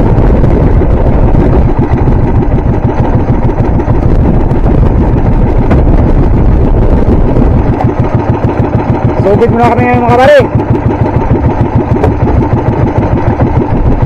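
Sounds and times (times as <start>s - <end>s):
boat engine running: 0.0s - 14.0s.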